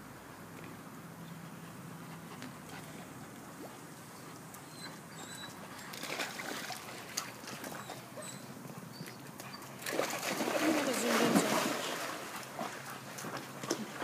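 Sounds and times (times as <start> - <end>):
dogs whimpering: 4.2 - 5.9, 7.6 - 9.8
paws clicking on wet concrete: 4.5 - 8.4, 9.0 - 10.8, 12.3 - 14.0.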